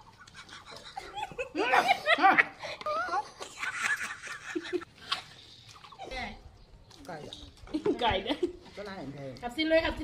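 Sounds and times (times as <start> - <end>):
women laughing: 0.0 - 4.9.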